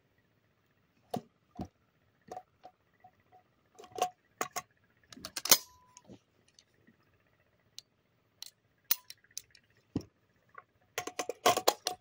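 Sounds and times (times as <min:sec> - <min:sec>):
shotgun handling clicks and knocks: 0:03.8 - 0:05.8, 0:08.4 - 0:12.0.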